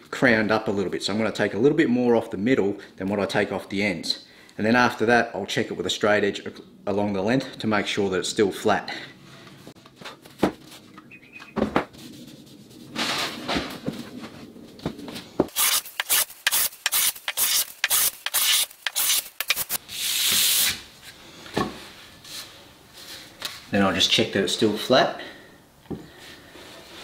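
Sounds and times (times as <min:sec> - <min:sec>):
hand plane shaving wood: 0:15.5 - 0:19.6.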